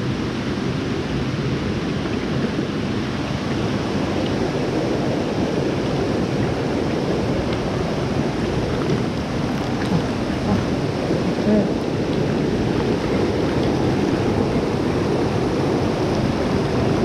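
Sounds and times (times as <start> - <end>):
stream water rushing over rocks: 0.0 - 17.0.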